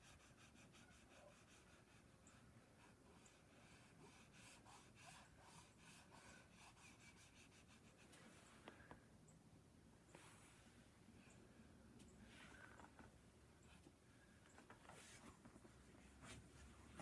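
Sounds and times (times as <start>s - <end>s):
pastel scratching on paper: 0.0s - 8.2s.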